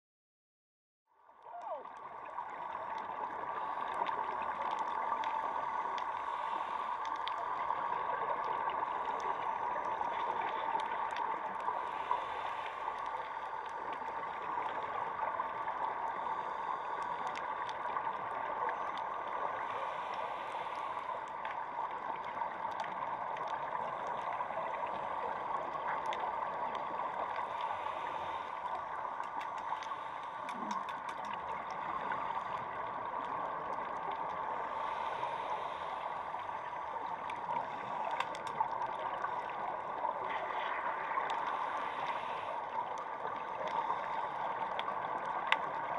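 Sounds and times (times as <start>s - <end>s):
faint scattered clicks and crackles: 1.2s - 45.9s
underwater hiss-like wash: 3.5s - 10.8s, 11.4s - 18.1s, 19.1s - 22.5s, 23.2s - 30.9s, 33.8s - 42.6s.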